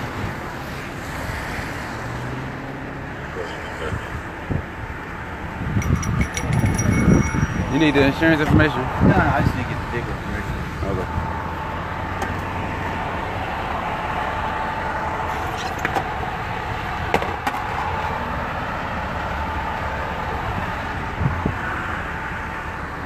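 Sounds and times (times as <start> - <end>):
engine rumbling: 0.0 - 23.0
street and vehicle noise: 0.0 - 23.0
sharp clicks and knocks: 5.8 - 7.7.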